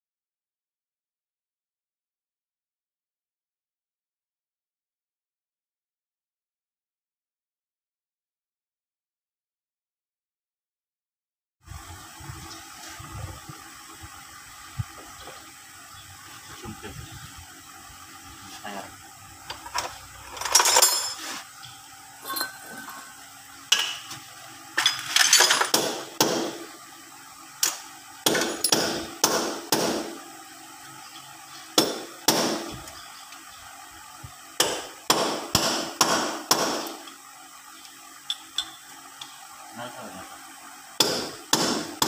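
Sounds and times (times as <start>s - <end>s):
hammer striking steel: 28.3s - 30.1s.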